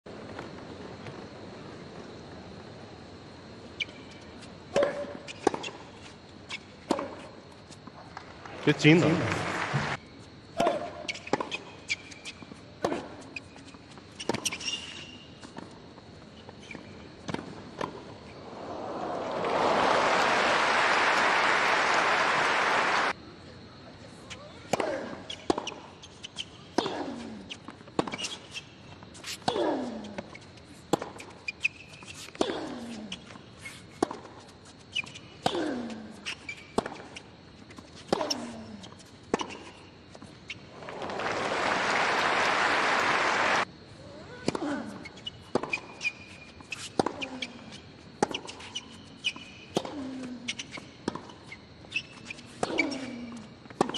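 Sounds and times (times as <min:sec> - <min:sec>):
crowd applauding: 0:08.6 - 0:10.0, 0:18.4 - 0:23.1, 0:40.7 - 0:43.6.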